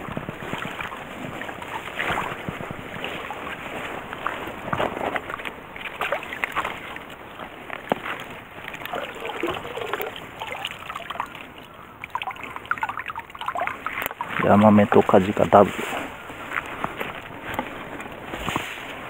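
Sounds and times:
water trickling through mesh: 0.0s - 15.7s
net splashing and sloshing in water: 0.0s - 17.2s
clicks and rustles: 15.8s - 19.0s.

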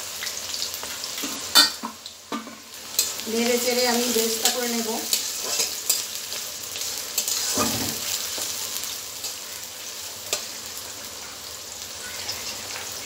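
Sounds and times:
onions sizzling in hot oil: 0.0s - 13.0s
metal spatula scraping pan: 4.2s - 8.5s.

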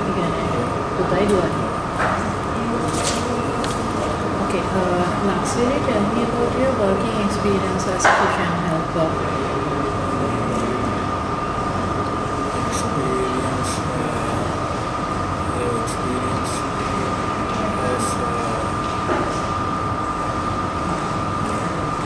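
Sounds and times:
background hum and hiss: 0.0s - 22.0s
high-pitched whine: 0.0s - 22.0s.

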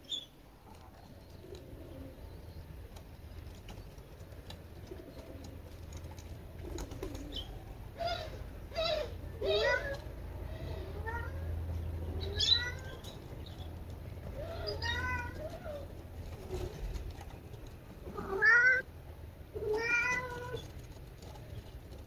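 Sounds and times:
cat meowing: 10.9s - 11.5s, 12.2s - 13.0s, 14.6s - 15.9s, 18.2s - 18.9s, 19.6s - 20.6s.

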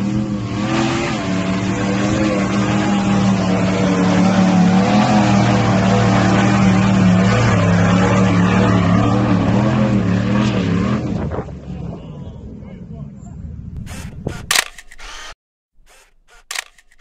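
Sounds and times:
car engine working hard: 0.0s - 11.6s.

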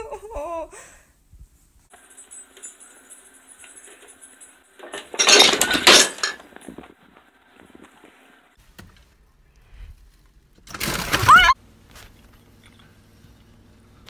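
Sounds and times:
objects crashing over: 4.8s - 7.0s.

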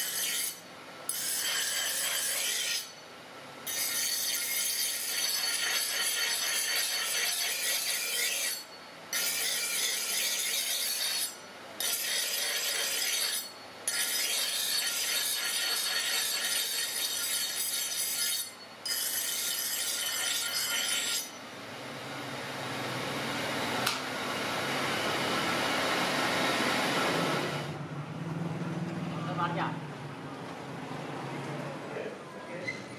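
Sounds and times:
steel grinding on abrasive wheel: 0.0s - 3.0s, 3.6s - 21.4s
grinder running: 3.6s - 21.4s.

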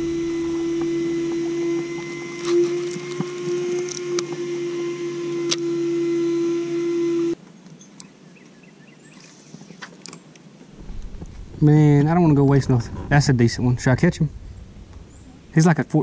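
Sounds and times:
electric motor humming: 0.0s - 7.4s.

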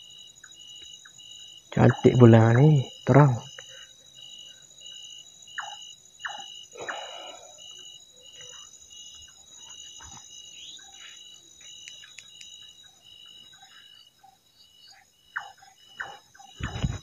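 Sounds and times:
high-pitched insect chirp: 0.0s - 17.0s
insect trill: 0.0s - 17.0s.

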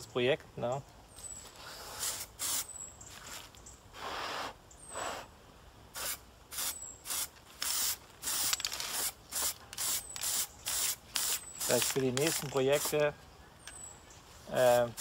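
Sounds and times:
spray paint can hissing bursts: 1.9s - 2.7s, 5.9s - 13.0s, 14.6s - 15.0s.

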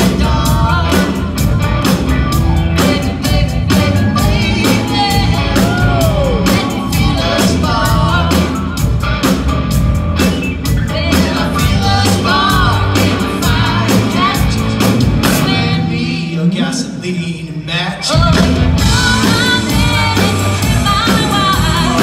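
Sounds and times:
woman singing: 0.0s - 1.5s, 2.7s - 8.9s, 10.8s - 16.3s, 18.1s - 22.0s
steady drum beat: 0.0s - 15.9s, 18.1s - 22.0s
electric guitar: 0.0s - 16.2s
electric bass: 0.0s - 16.7s, 18.1s - 22.0s
keyboard: 0.0s - 22.0s.

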